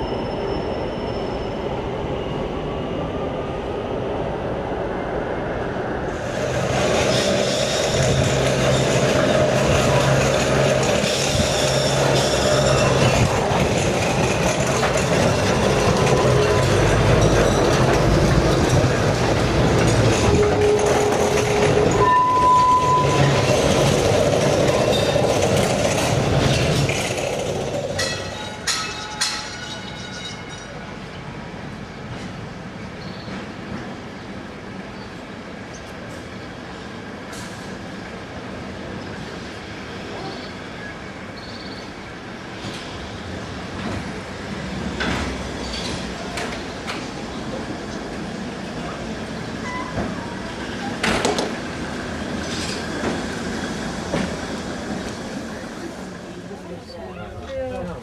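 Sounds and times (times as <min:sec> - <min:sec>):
brief high squeal: 0:00.0 - 0:01.7, 0:21.9 - 0:23.4, 0:49.6 - 0:50.1
funicular car rolling on track: 0:05.4 - 0:58.0
sharp metallic clanks: 0:28.0 - 0:30.8.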